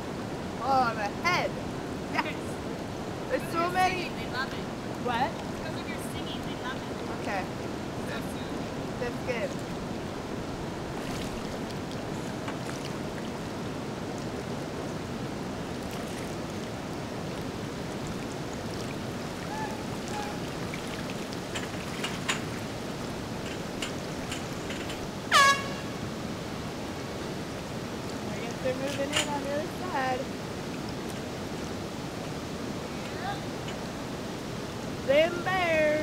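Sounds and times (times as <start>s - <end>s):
water rushing over a weir: 0.0s - 36.0s
air horn blast: 25.3s - 26.0s.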